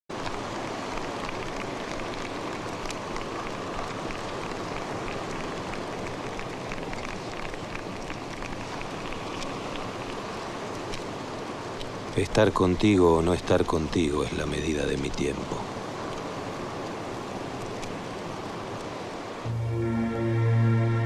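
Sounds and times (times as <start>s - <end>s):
small crackles and ticks: 0.1s - 19.4s.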